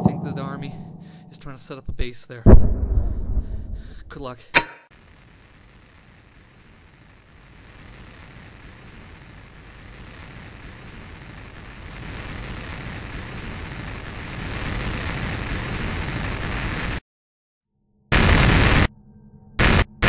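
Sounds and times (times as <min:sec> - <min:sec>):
loud burst of static: 0:05.0 - 0:17.0, 0:18.1 - 0:18.9, 0:19.6 - 0:20.0
static hiss: 0:05.0 - 0:17.0, 0:18.1 - 0:18.9, 0:19.6 - 0:19.9.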